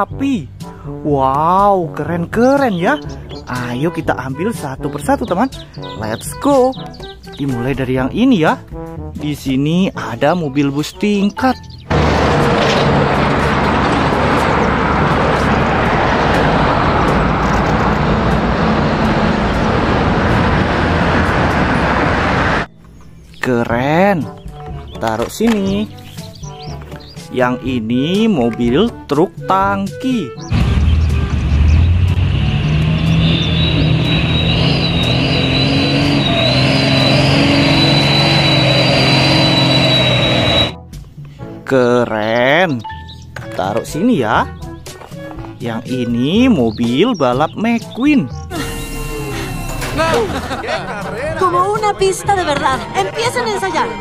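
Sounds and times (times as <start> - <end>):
bus engine rumbling: 11.7 - 22.7, 30.4 - 40.8, 48.4 - 54.0
cars passing: 11.9 - 22.7, 30.4 - 40.8, 48.5 - 54.0
high-pitched whine: 31.7 - 40.8, 48.5 - 50.6.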